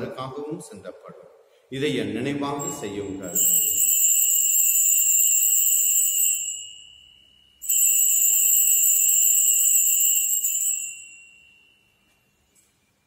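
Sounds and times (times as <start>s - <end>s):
altar bells ringing: 2.6s - 12.4s.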